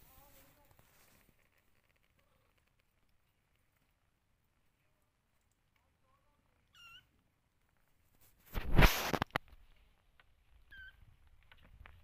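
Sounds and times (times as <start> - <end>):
loud rustling scrape: 8.2 - 9.4.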